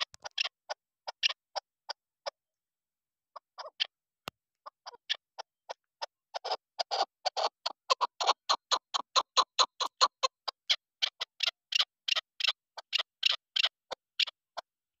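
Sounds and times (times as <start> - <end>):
partridge clucking: 0.0 - 1.6, 4.6 - 14.4.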